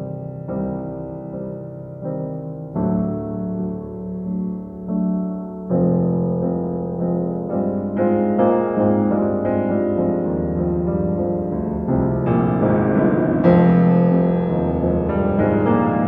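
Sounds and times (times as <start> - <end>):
slow piano chords: 0.0 - 16.0.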